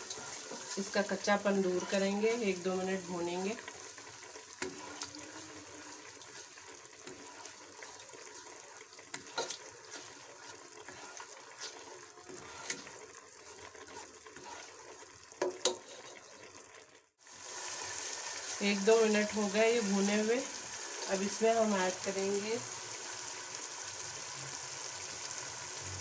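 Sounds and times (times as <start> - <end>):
spatula scraping and tapping pan: 0.0 - 1.0, 4.6 - 16.4
paste sizzling in hot oil: 0.0 - 26.0.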